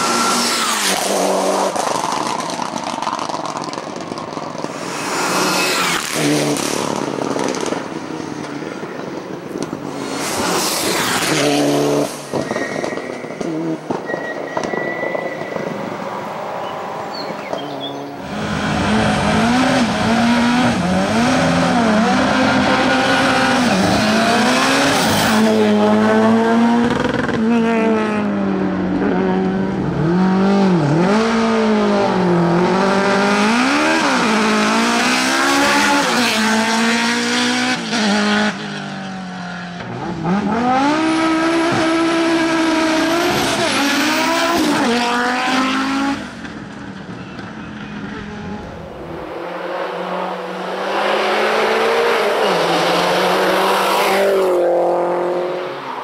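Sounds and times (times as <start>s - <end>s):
racing car engines revving: 0.0s - 56.0s
thin high squeal: 12.4s - 13.4s, 14.0s - 15.8s.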